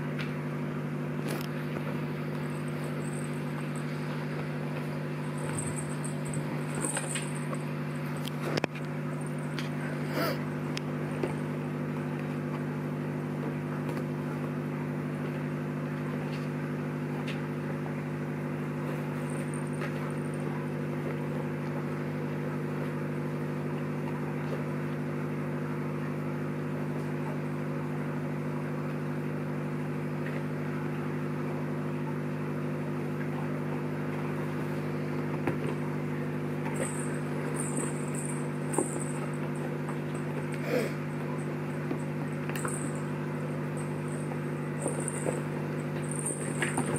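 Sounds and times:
electric motor hum: 1.2 - 12.2, 19.0 - 21.2, 36.1 - 46.9
small bells jingling: 2.4 - 4.0, 5.2 - 8.3, 9.0 - 10.0, 19.2 - 20.5, 36.7 - 40.4, 41.3 - 46.9.

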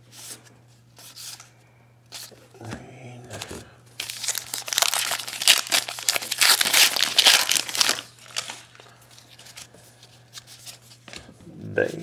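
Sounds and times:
wrapper tearing and crinkling: 4.0 - 9.3.

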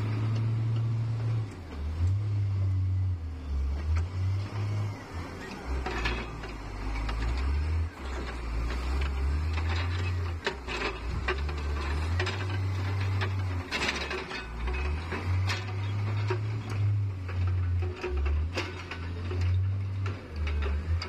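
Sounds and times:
wheel loader diesel engine: 0.0 - 21.0
clanks and knocks: 5.8 - 21.0.

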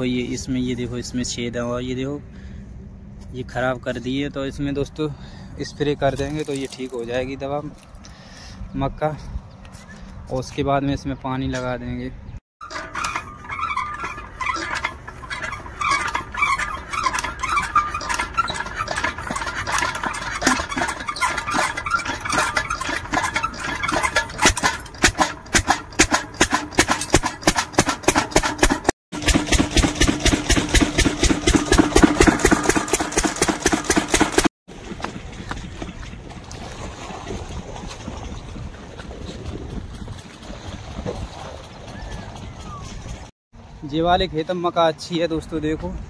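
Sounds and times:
diesel engine running: 12.7 - 34.5.

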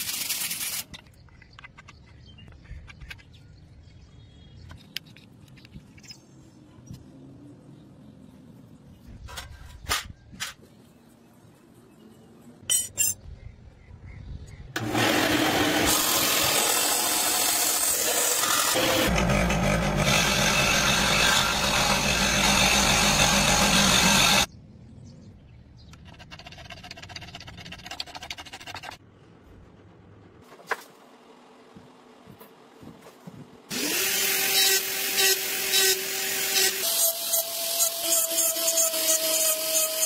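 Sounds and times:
power tool cutting brass: 14.8 - 24.5, 33.7 - 40.0.

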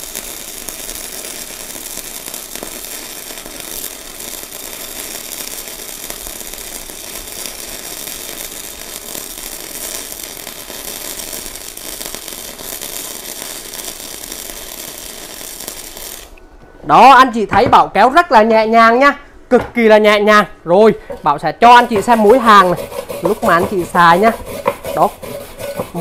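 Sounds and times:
welding arc crackling sizzle: 0.0 - 16.4, 21.6 - 26.0.

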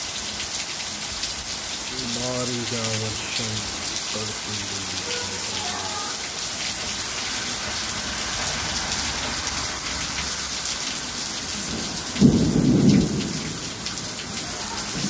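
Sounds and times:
heavy rain pouring: 0.0 - 15.0
thunder rumble: 11.6 - 15.0.

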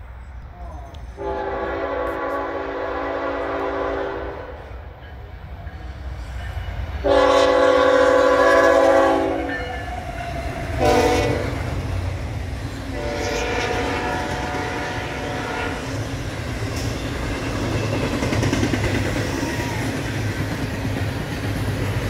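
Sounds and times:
locomotive air horn blasts: 1.2 - 4.8, 7.0 - 10.0, 10.8 - 11.7, 12.9 - 15.9.

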